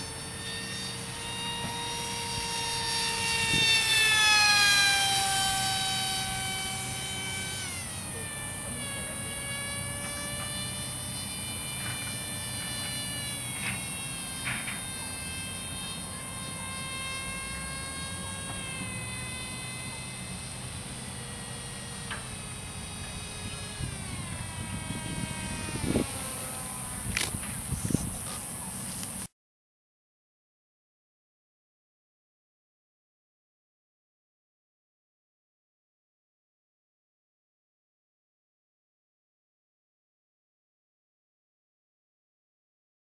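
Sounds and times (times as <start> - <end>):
model plane motor whining: 0.0 - 29.3.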